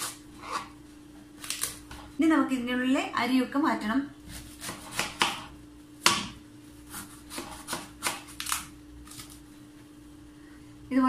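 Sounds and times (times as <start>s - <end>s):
knife slicing gourd on cutting board: 0.0s - 0.8s, 4.2s - 9.4s.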